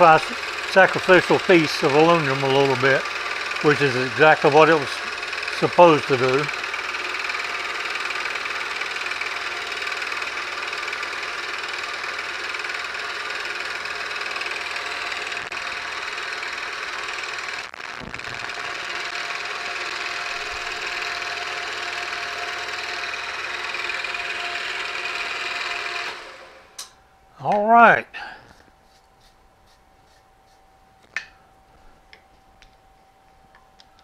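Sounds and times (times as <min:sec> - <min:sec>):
milling machine cutting metal: 0:00.0 - 0:26.9.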